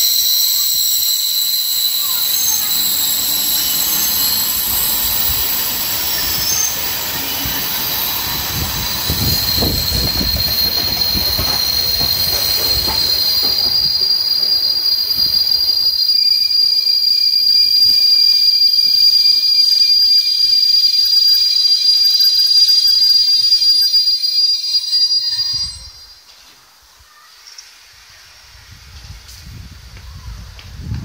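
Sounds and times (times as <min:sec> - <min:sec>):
steam locomotive rumble: 0:00.0 - 0:16.9
train wheel squeal: 0:00.0 - 0:26.6.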